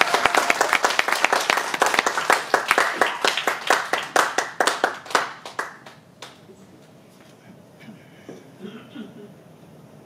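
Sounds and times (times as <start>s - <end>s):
audience applause: 0.0s - 6.4s.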